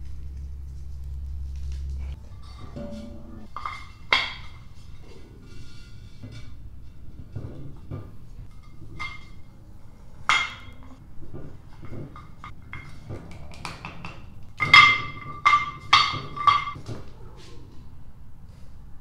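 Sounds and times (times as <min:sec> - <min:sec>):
sharp ringing knocks: 0:02.5 - 0:04.7.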